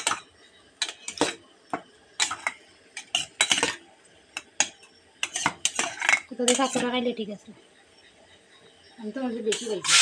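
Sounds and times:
spoon scraping steel bowl: 5.2s - 6.9s, 9.5s - 10.0s.

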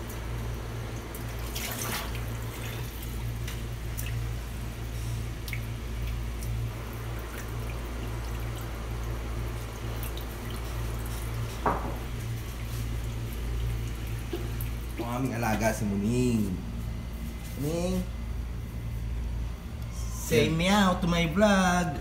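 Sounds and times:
steady low hum: 0.0s - 22.0s
short knock: 11.6s - 12.0s.

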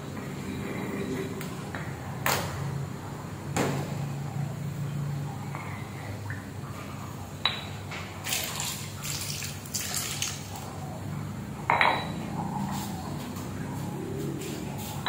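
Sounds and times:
liquid pouring and splashing: 8.2s - 10.7s.

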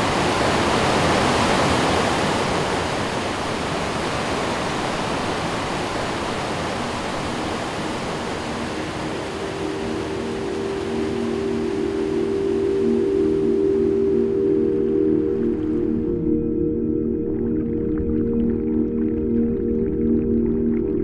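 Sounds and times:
water rushing over rocks: 0.0s - 12.8s.

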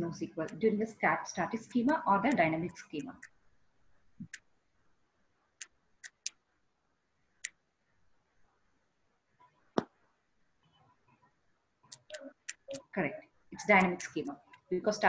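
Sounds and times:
sharp clicks: 5.6s - 6.4s, 11.9s - 12.9s.

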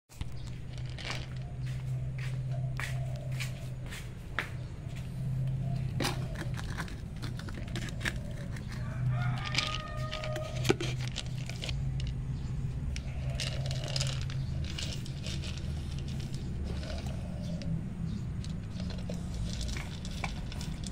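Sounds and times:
kibble clicking on concrete floor: 0.1s - 20.9s
rooster crowing: 8.6s - 10.9s.

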